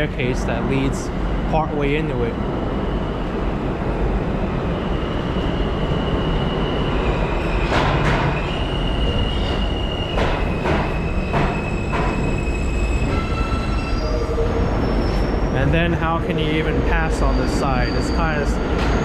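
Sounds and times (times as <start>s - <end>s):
subway train rumble: 0.0s - 19.0s
high wheel squeal: 4.8s - 19.0s.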